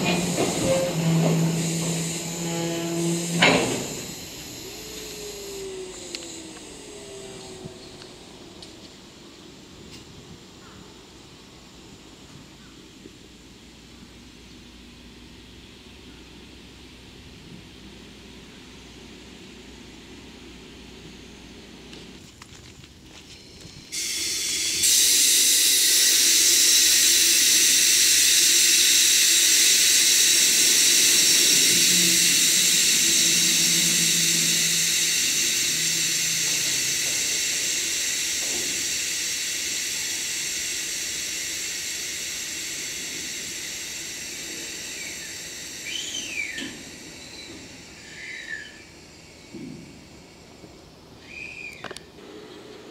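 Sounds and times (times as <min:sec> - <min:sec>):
air brakes hissing: 0:00.0 - 0:08.8, 0:23.3 - 0:52.6.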